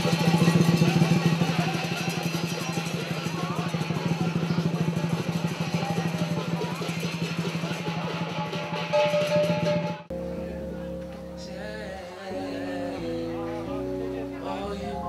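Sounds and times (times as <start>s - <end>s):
fast drumming with cymbals: 0.0s - 10.1s
slow guitar chords: 10.1s - 15.0s.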